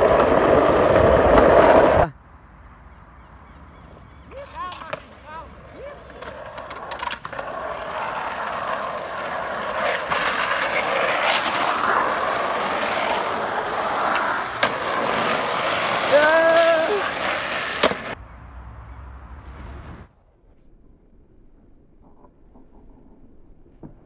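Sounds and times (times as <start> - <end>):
skateboard clack: 0.0 - 2.0, 4.3 - 18.2
skateboard wheels rolling on asphalt: 0.0 - 2.1, 3.6 - 18.2
person shouting: 16.0 - 17.3.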